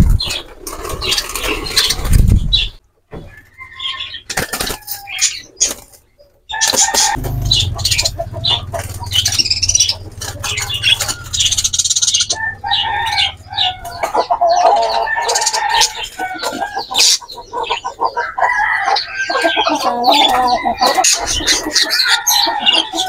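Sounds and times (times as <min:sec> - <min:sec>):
parakeets calling in alarm: 0:06.6 - 0:18.2.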